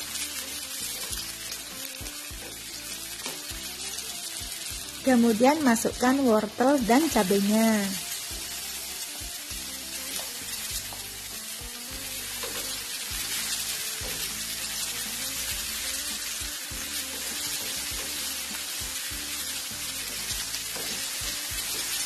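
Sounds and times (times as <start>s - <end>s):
background music: 0.0s - 22.0s
vegetables sizzling in oil: 0.0s - 22.0s
spatula scraping a pan: 11.8s - 22.0s.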